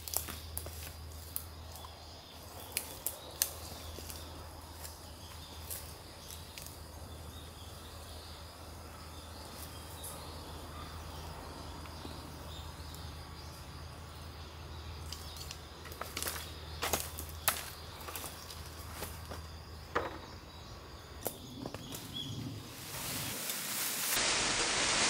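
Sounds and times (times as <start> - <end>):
faint high insect drone: 0.0 - 25.0.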